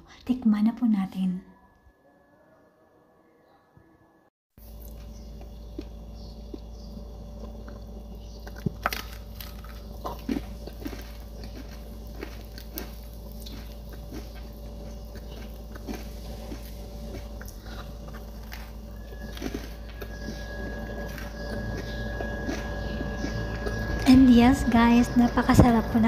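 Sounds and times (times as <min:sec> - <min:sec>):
steady low hum: 0:04.0 - 0:26.0
crunching and chewing: 0:04.6 - 0:24.2
dough ball crackling: 0:04.6 - 0:26.0.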